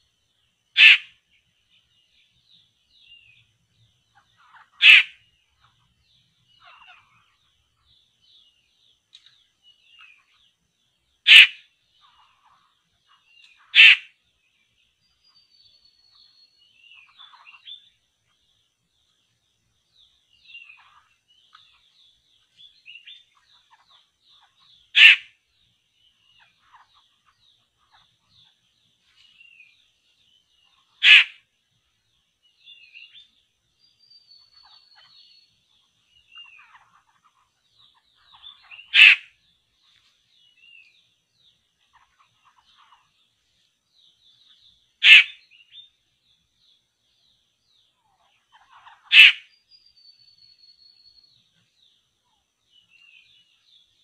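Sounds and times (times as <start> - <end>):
small birds chirping: 0.0 - 54.0
harsh bird call: 0.8 - 1.1, 4.7 - 5.2, 11.3 - 11.6, 13.6 - 14.1, 31.0 - 31.4, 38.8 - 39.3, 45.0 - 45.4, 49.0 - 49.5.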